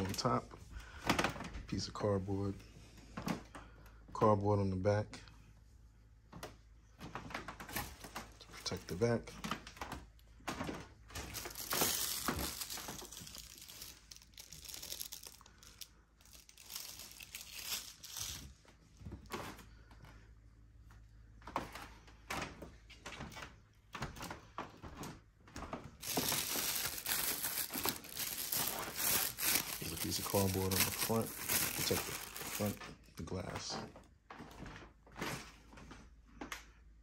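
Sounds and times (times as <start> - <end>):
plastic bag crinkling and rustling: 0.0 - 1.8, 7.1 - 19.6, 26.0 - 35.8.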